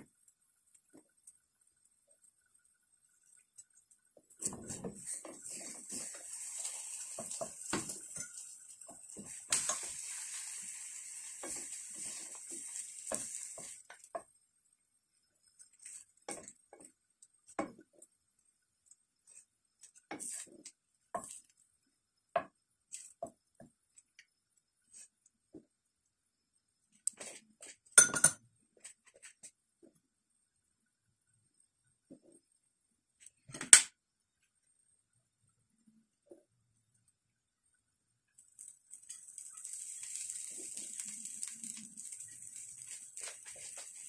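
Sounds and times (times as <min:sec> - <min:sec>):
spatula scraping a pan: 0:04.4 - 0:14.3, 0:19.2 - 0:20.6, 0:39.0 - 0:44.0
food sizzling in a pan: 0:04.4 - 0:14.4, 0:15.2 - 0:17.9, 0:20.0 - 0:21.5, 0:38.3 - 0:44.0.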